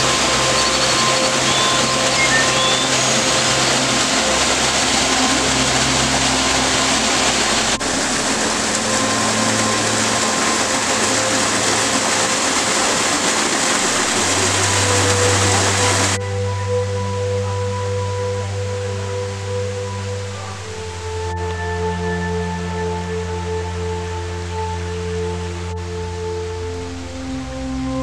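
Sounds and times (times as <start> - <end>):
small waterfall splashing: 0.0 - 17.0
soft musical drone: 0.0 - 28.0.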